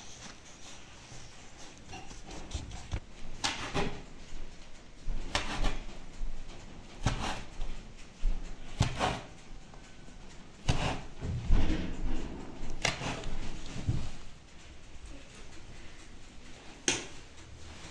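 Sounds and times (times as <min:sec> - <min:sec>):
knife slicing dough: 0:07.0 - 0:07.5, 0:10.6 - 0:11.2, 0:12.8 - 0:13.3.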